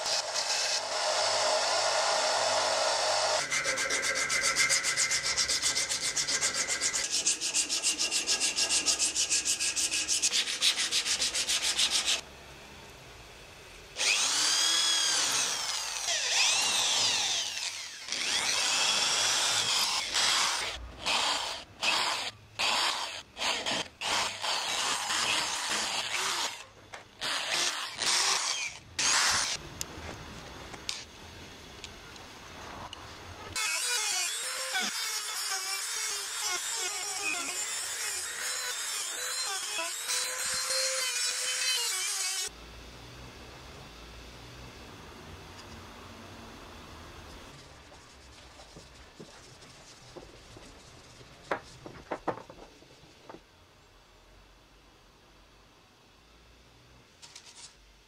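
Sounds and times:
belt sander grinding wood: 14.0 - 26.6
drill boring into wood: 14.0 - 26.6, 27.2 - 29.6.

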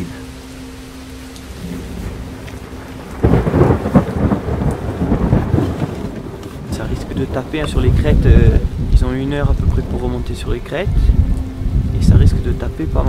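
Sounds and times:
heavy rain: 0.0 - 13.0
low hum: 0.0 - 13.0
thunder: 1.6 - 10.1.

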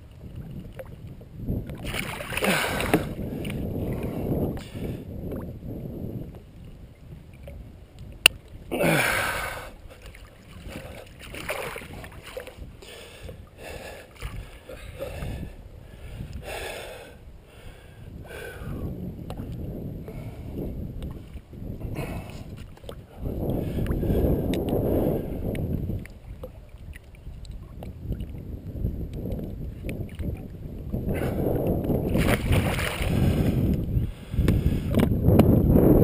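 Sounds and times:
water sloshing and splashing: 0.0 - 5.5, 6.7 - 15.4, 22.2 - 24.6, 25.6 - 28.5, 31.6 - 33.9.

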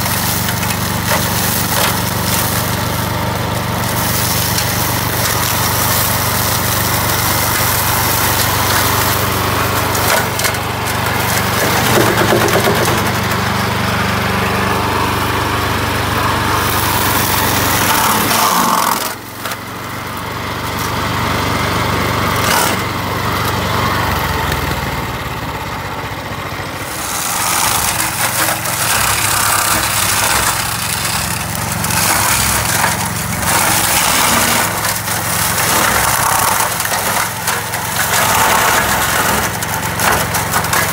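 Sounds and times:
blades chopping through brush: 0.0 - 13.3, 26.8 - 40.9
brush mower engine running: 0.0 - 40.9.

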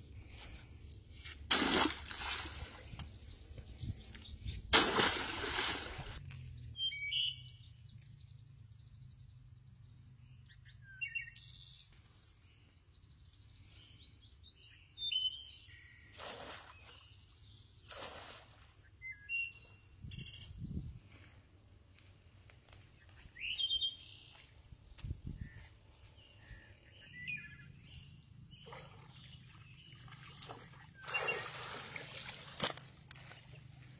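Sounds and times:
splash into water: 1.5 - 2.9, 4.7 - 6.2, 16.1 - 16.9, 17.9 - 18.6, 29.9 - 33.4
birds chirping: 2.2 - 17.8, 22.7 - 32.4.

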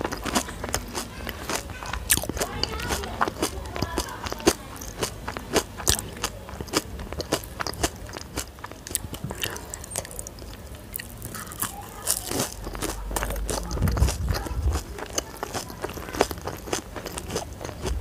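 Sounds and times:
mouth chewing crunchy snack: 0.0 - 18.0.

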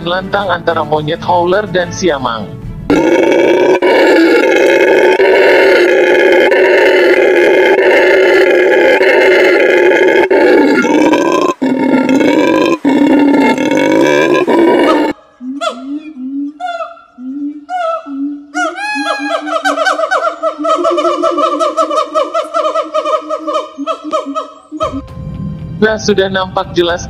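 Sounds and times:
howler monkey roaring: 2.9 - 25.0
siamang whooping calls: 14.2 - 25.0.

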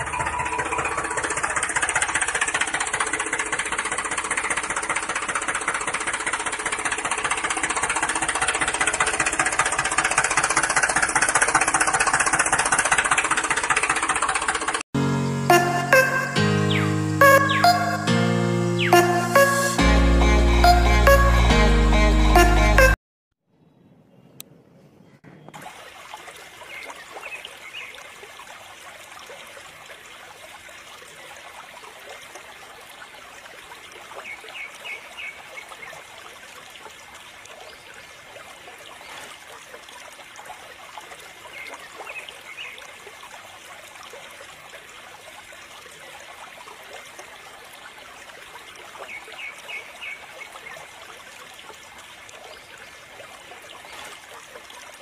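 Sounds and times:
water trickling and splashing: 0.0 - 14.8, 25.3 - 55.0
high chirps: 15.3 - 19.8.

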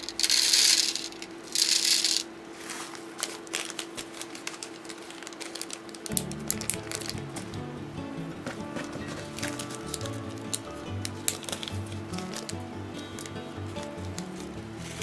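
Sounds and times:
light clicks of beads: 0.0 - 2.3
beads rattling into plastic tray: 0.0 - 7.4, 8.5 - 13.4
music: 6.0 - 15.0.

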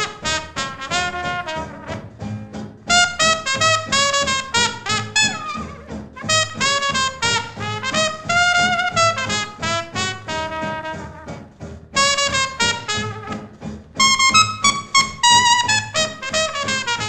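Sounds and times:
brass-led swing music: 0.0 - 17.0.

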